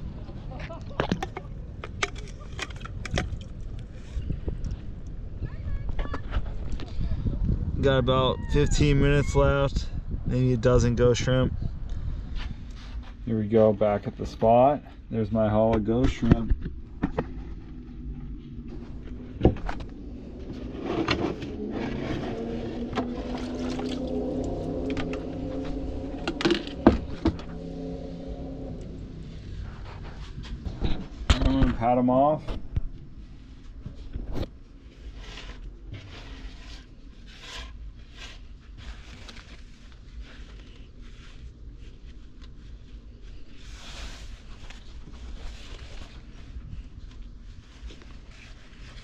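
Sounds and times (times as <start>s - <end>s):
water pouring onto wooden table: 23.1s - 24.7s
paper towel and plastic bag rustling: 34.8s - 49.0s.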